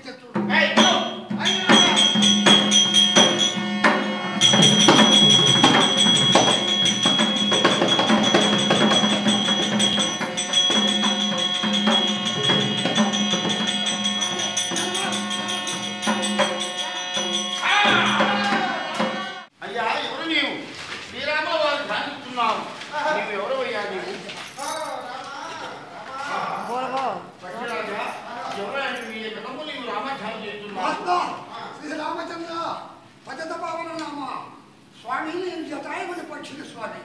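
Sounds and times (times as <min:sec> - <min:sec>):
drum strikes: 0:00.3 - 0:19.5
steady held tones: 0:00.4 - 0:19.5
cymbal strikes: 0:00.6 - 0:19.5.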